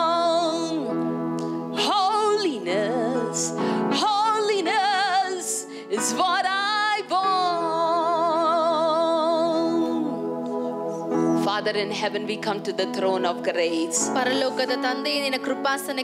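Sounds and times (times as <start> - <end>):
woman singing with vibrato: 1.8 - 10.2.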